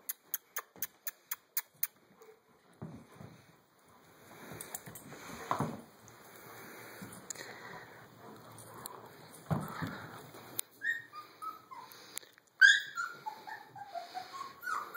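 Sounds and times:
rustling and scuffling: 2.5s - 10.8s
dog whimpering: 10.7s - 12.0s, 12.6s - 14.9s.

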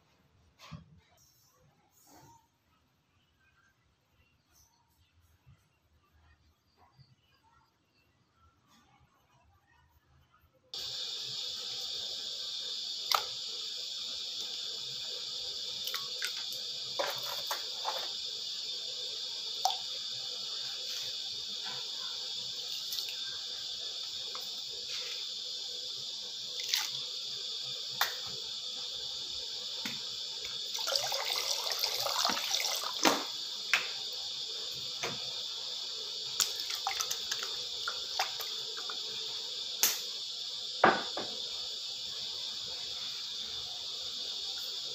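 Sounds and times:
pot of water hissing: 10.8s - 44.9s.

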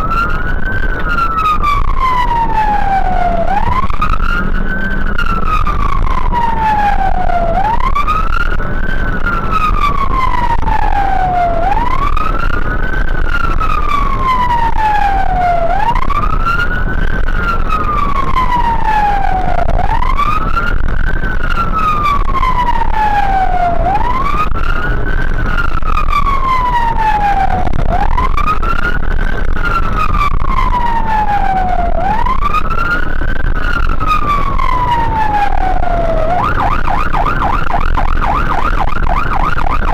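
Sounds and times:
engine and road rumble: 0.0s - 39.9s
fire engine siren wailing: 0.0s - 39.9s.

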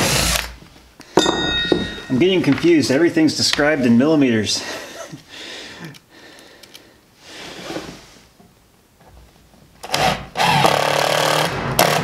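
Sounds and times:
drill driving screw: 0.0s - 0.6s, 9.8s - 12.0s.

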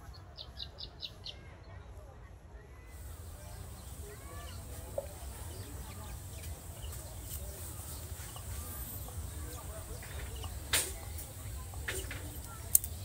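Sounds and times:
faint chirping calls: 0.0s - 1.7s, 2.9s - 13.0s
sharp click: 10.2s - 13.0s.

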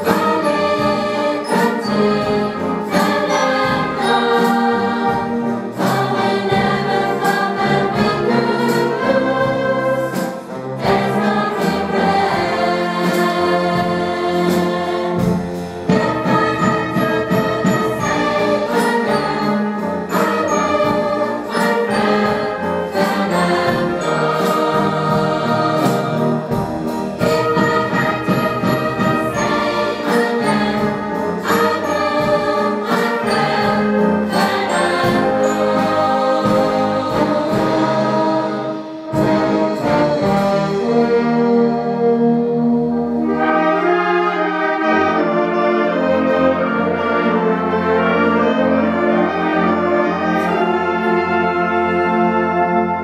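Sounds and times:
women's choir singing: 0.0s - 26.6s, 27.2s - 41.1s
wind band playing: 0.0s - 53.0s.

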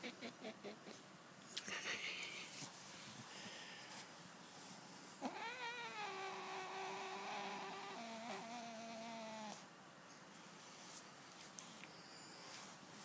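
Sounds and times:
cat meowing: 5.2s - 9.6s.

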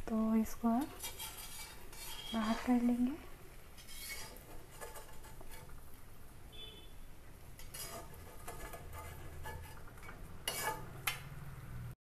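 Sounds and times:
metal skimmer scraping iron pan: 0.6s - 6.0s, 7.6s - 11.1s.

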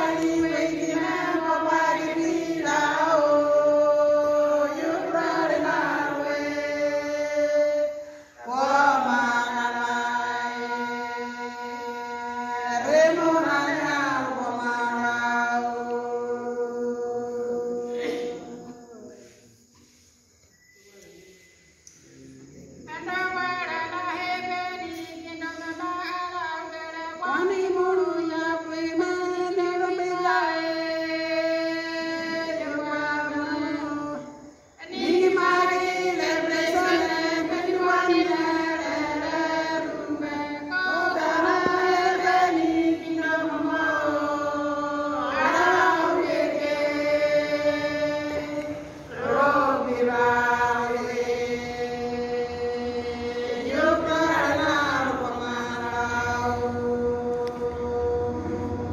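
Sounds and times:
women singing together: 0.0s - 19.4s, 22.8s - 58.9s.

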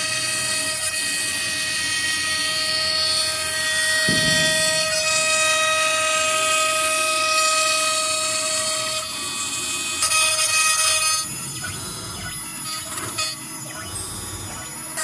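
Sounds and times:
low thump: 4.1s - 5.6s.

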